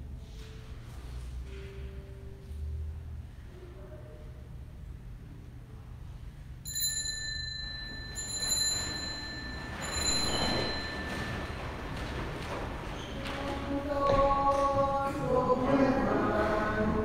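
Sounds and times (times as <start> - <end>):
small bell ringing: 6.6 - 11.8.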